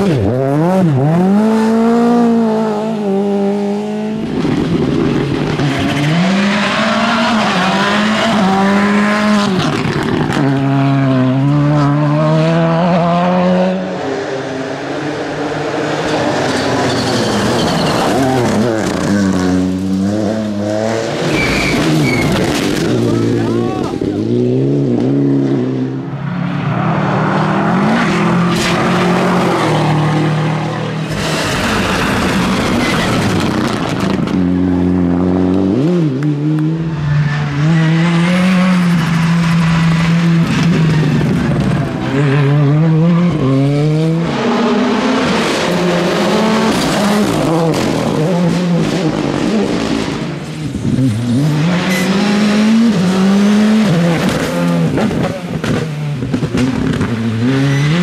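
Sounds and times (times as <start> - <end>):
rally car engines revving: 0.0 - 58.0
tyre and gravel noise: 28.4 - 34.5.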